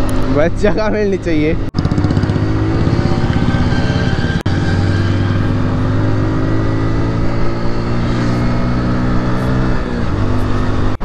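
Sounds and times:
motorcycle engine running steadily: 0.0 - 4.2.

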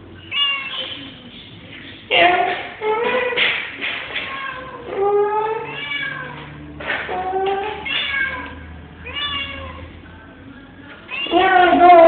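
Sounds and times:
cat meowing: 4.2 - 6.5, 7.1 - 9.9, 11.1 - 12.0.

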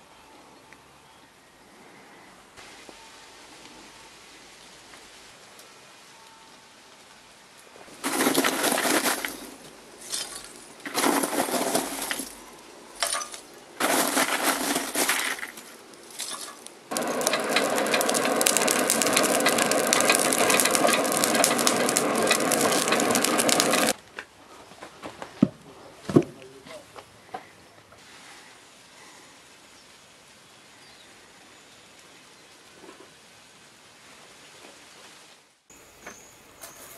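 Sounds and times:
burning coal crackling: 6.8 - 25.3
forge blower fan whirring: 16.9 - 24.0.

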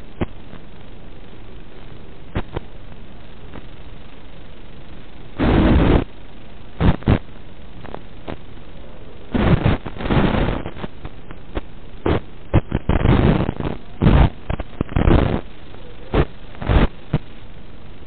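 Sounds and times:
radio static hiss: 0.0 - 18.0
bursts of noise: 5.4 - 6.2, 6.8 - 8.6, 9.2 - 17.3.

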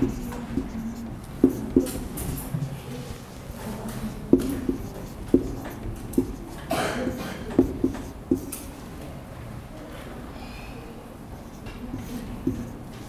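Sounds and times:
marker tip tapping whiteboard: 0.0 - 2.6, 4.3 - 8.7, 11.5 - 13.0
marker scratching on whiteboard: 0.0 - 8.8, 11.3 - 13.0.

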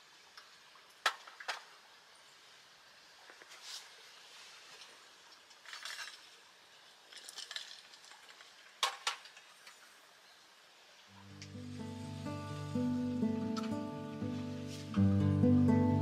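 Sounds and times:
acoustic guitar music: 11.1 - 16.0
gas burner hissing: 11.4 - 14.9.

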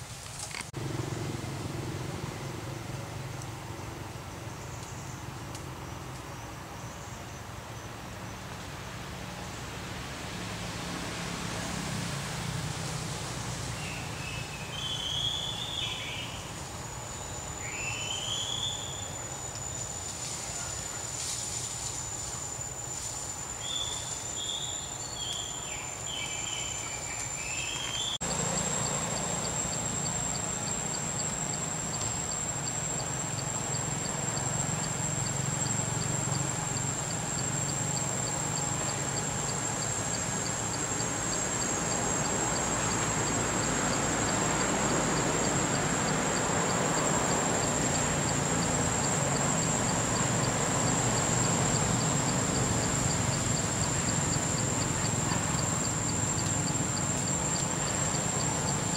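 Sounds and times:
insects droning: 0.0 - 58.9
short high chirping calls: 13.8 - 16.5, 17.2 - 19.9, 23.6 - 28.2.

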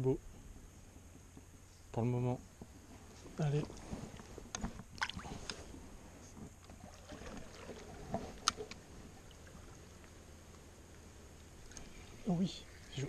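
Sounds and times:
water sloshing and splashing: 3.7 - 5.7, 6.5 - 10.2.

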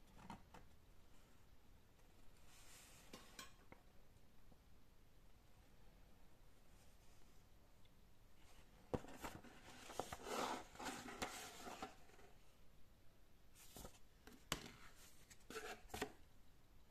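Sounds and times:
paper rustling and sliding: 9.0 - 12.3.

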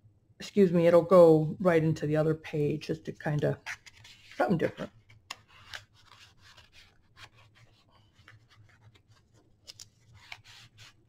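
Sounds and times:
paper rustling and scraping: 3.6 - 11.0.

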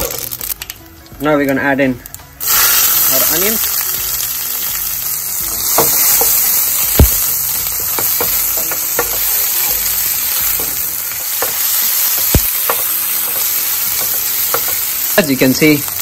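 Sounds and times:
onions sizzling in oil: 2.4 - 16.0
spatula knocking pan: 5.6 - 15.1.

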